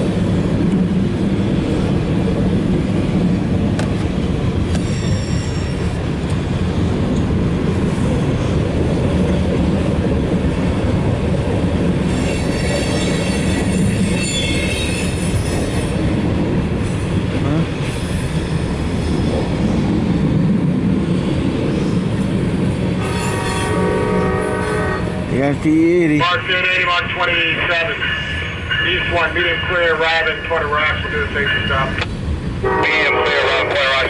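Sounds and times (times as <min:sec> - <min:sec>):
steel wheels rumbling on rail: 0:00.0 - 0:34.0
metallic wheel squeal: 0:04.8 - 0:06.0, 0:12.1 - 0:15.7.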